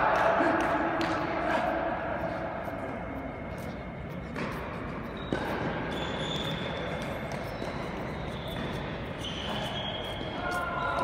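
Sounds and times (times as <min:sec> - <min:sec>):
tennis balls bouncing and struck: 0:04.3 - 0:10.5.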